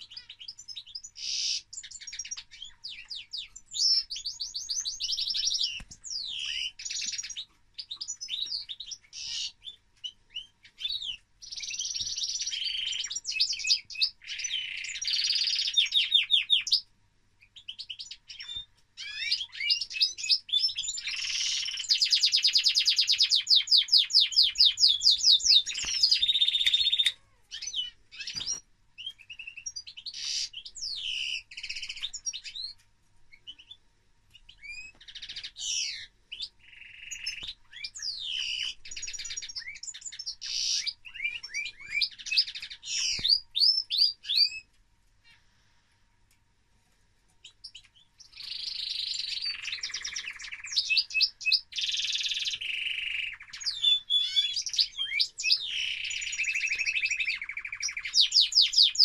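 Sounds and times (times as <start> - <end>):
goldfinch singing: 0.0 - 16.8, 17.6 - 32.8, 34.4 - 44.7, 47.4 - 59.0.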